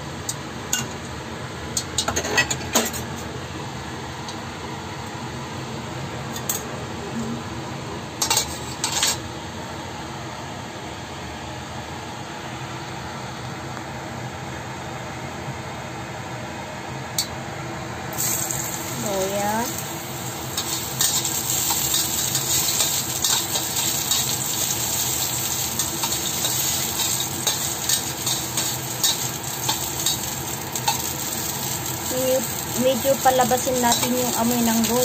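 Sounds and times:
background hum: 18.1 - 35.0.

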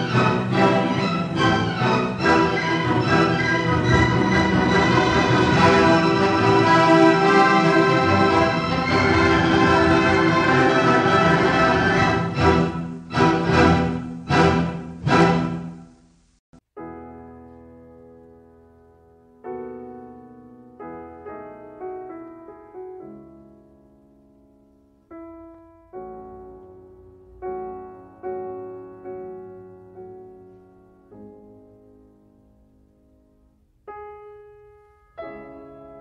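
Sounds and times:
orchestral music sustained chords: 0.0 - 15.9
slow classical solo piano: 16.8 - 36.0.

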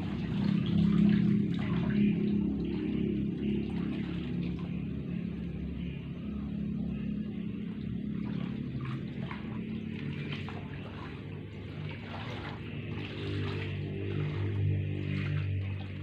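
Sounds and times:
pond water splashing: 0.0 - 16.0
water draining from scoop: 8.2 - 16.0.

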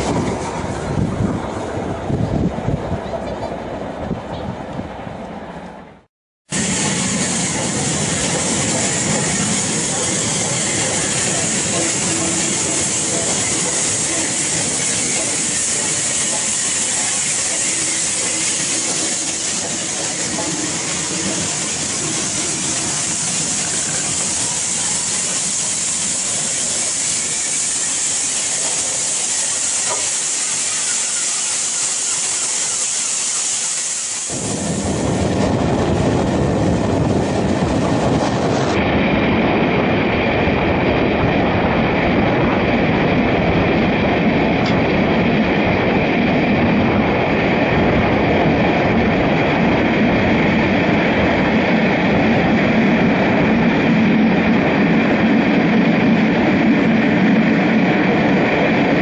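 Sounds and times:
steam train running on rails: 0.0 - 59.0
steam hissing: 6.5 - 35.5.

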